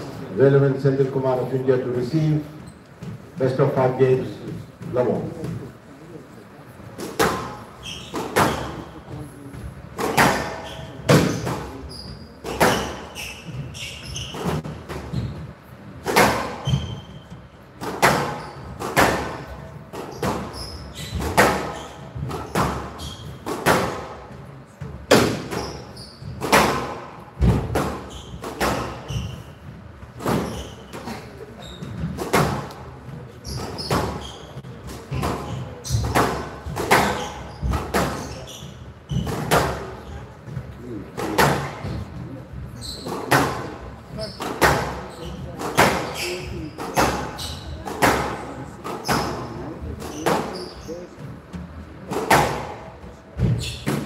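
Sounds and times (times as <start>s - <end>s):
court shoes squeaking: 0.0s - 54.0s
squash ball striking rackets and wall: 7.0s - 9.0s, 10.0s - 29.5s, 30.1s - 32.9s, 33.5s - 40.1s, 41.2s - 42.2s, 43.1s - 50.8s, 52.1s - 54.0s.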